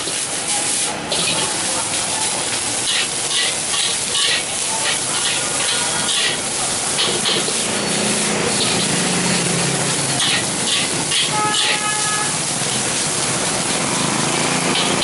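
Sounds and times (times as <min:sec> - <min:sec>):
rice sizzling in a wok: 0:00.0 - 0:15.0
metal spatula scraping a wok: 0:02.8 - 0:12.3.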